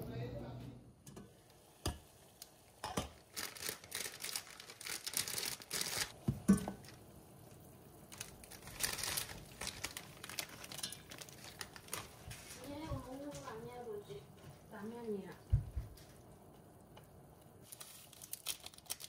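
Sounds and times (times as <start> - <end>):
dry noodles breaking: 3.2 - 6.2, 8.1 - 12.7, 17.6 - 19.0
plastic packet crinkling: 3.2 - 6.2, 8.1 - 13.6, 17.6 - 19.0.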